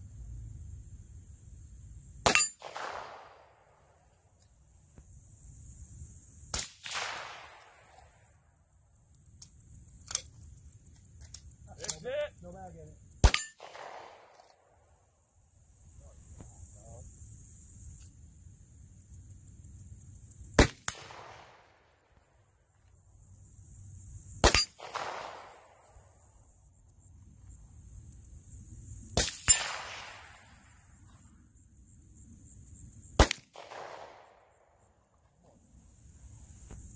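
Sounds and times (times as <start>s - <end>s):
gunshots with ringing tail: 2.2s - 4.0s, 6.5s - 8.2s, 13.2s - 14.8s, 20.6s - 21.8s, 24.4s - 26.1s, 29.2s - 30.9s, 33.2s - 34.5s.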